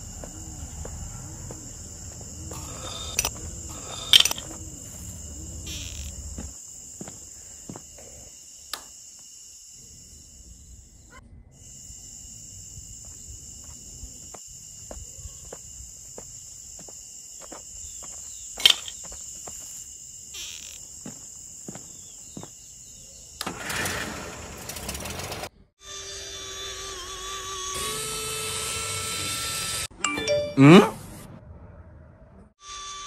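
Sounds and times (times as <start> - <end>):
crickets chirring: 0.0 - 23.7
small electric motor buzzing: 25.8 - 29.9, 32.6 - 33.0.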